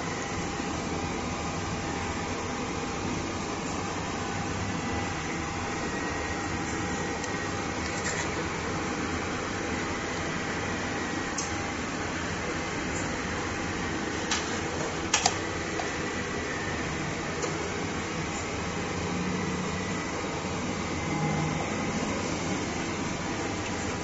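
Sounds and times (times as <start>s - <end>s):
fan-like equipment hum: 0.0s - 24.0s.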